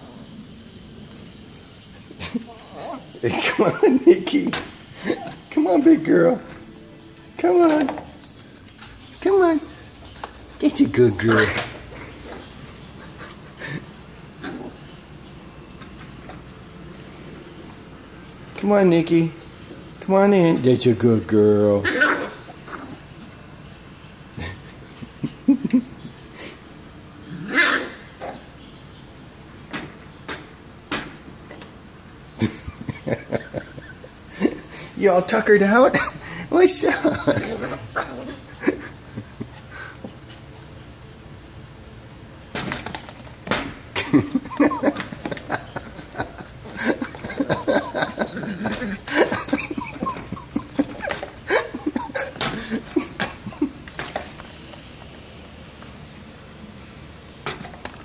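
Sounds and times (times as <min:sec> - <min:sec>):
claws scratching screen door: 0:07.4 - 0:19.2, 0:42.4 - 0:56.0
small dog barking: 0:21.8 - 0:22.4, 0:27.5 - 0:28.4.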